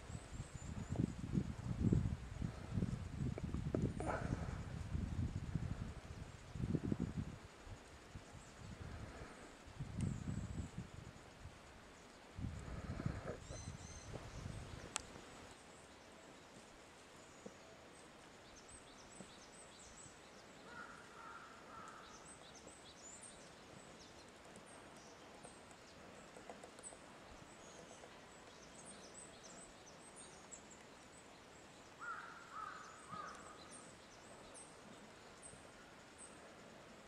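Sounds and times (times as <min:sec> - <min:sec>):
lower bird call: 0:12.5 - 0:15.0, 0:32.0 - 0:35.1
high thin bird chirps: 0:13.2 - 0:14.9.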